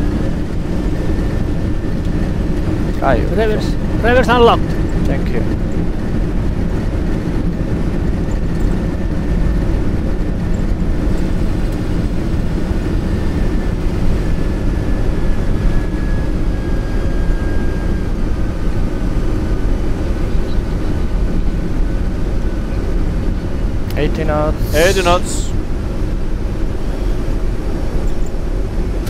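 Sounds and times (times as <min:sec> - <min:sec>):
runway rumble: 0:00.0 - 0:16.6, 0:18.0 - 0:29.0
jet engines in reverse thrust: 0:00.0 - 0:29.0
faint falling whine: 0:24.4 - 0:25.7.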